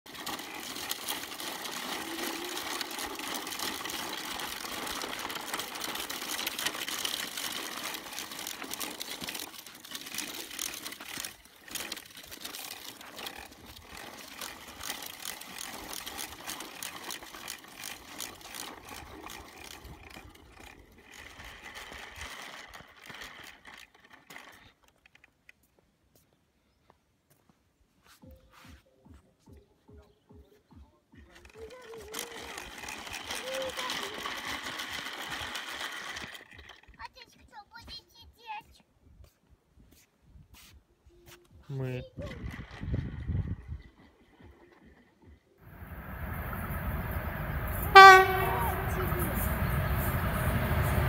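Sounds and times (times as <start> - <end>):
plastic toy wheels rattling on dirt: 0.0 - 25.8, 31.1 - 38.7, 41.6 - 51.0.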